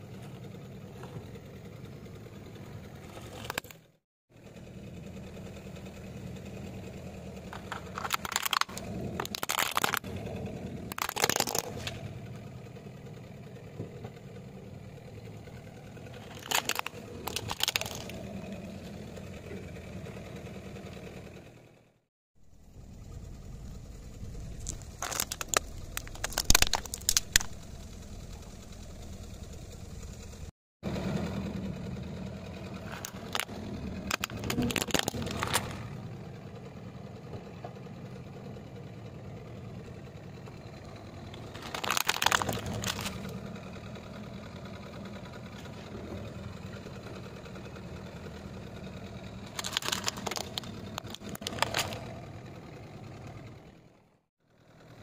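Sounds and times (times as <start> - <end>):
car engine idling: 0.0 - 55.0
plastic toys cracking and crunching: 3.2 - 3.8, 7.5 - 12.0, 16.1 - 18.4, 24.2 - 27.7, 32.8 - 36.0, 41.3 - 43.4, 49.4 - 52.2.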